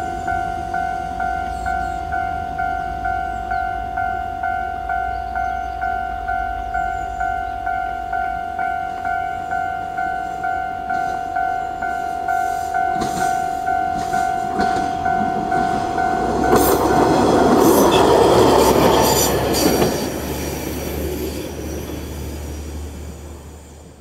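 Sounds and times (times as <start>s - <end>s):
level-crossing alarm ringing: 0.0s - 22.5s
railcar engine droning low: 0.0s - 24.0s
train wheels clicking over rail joints: 8.9s - 22.9s.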